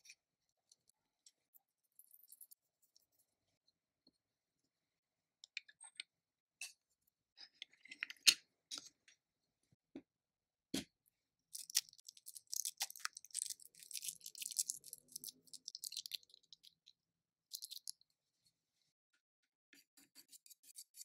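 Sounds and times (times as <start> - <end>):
miniature kitchen utensils clicking: 11.6 - 16.9, 17.5 - 18.0
dense steady crackle: 11.6 - 18.0.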